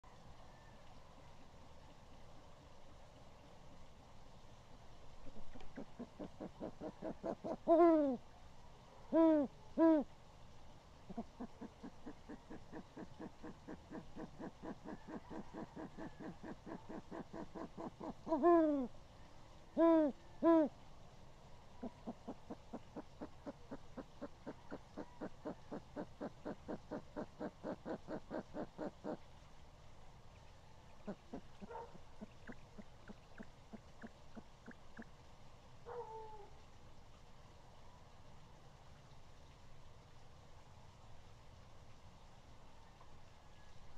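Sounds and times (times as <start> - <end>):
owl hooting: 5.5 - 8.2, 9.1 - 10.1, 11.1 - 18.9, 19.8 - 20.7, 21.8 - 29.2, 31.0 - 35.1.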